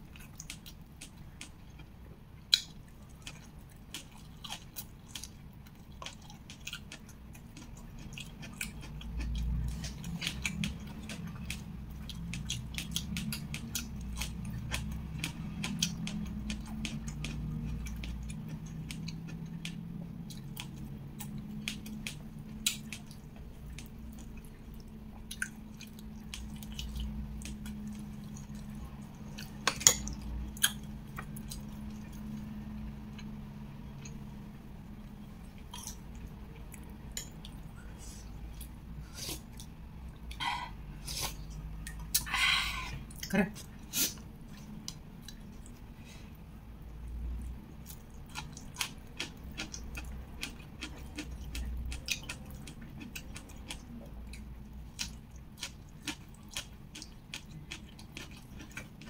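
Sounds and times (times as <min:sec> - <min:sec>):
low steady hum: 0:00.0 - 0:59.0
person chewing with wet mouth clicks: 0:02.5 - 0:32.3, 0:47.4 - 0:59.0.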